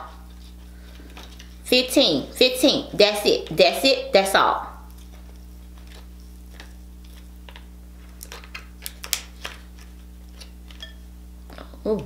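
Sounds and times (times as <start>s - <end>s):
steady low hum: 0.0s - 12.0s
crab shell cracking and squishing: 4.9s - 10.8s.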